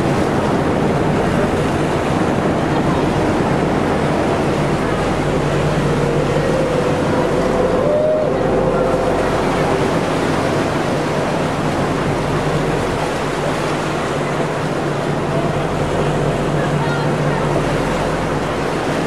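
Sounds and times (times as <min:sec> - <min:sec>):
wind rushing: 0:00.0 - 0:14.1
low engine hum: 0:00.0 - 0:19.0
sea water rushing: 0:00.0 - 0:19.0.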